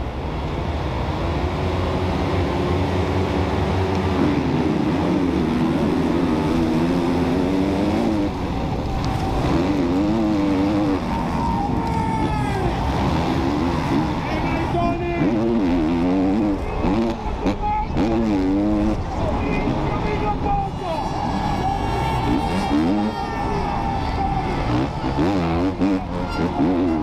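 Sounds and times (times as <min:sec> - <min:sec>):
motorcycle engine at hard throttle: 0:00.0 - 0:11.6, 0:24.5 - 0:27.0.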